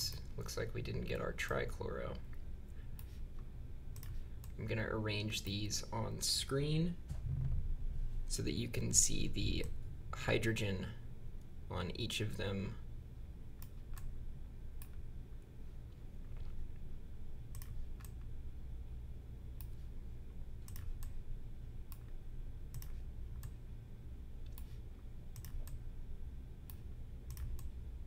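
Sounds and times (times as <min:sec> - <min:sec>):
steady low hum: 0:00.0 - 0:28.0
computer mouse clicking: 0:02.9 - 0:04.6, 0:13.6 - 0:14.1, 0:17.5 - 0:18.3, 0:20.6 - 0:21.2, 0:21.9 - 0:23.6, 0:24.4 - 0:25.8, 0:26.6 - 0:27.8.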